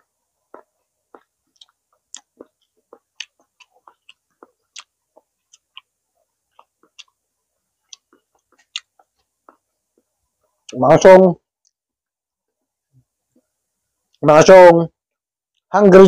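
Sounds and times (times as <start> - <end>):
wet chewing and lip smacks: 0.5 - 10.8.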